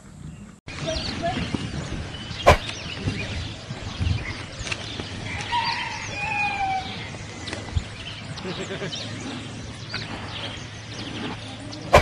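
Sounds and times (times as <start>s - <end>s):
small birds chirping: 0.0s - 12.0s
sharp click: 2.5s - 2.8s.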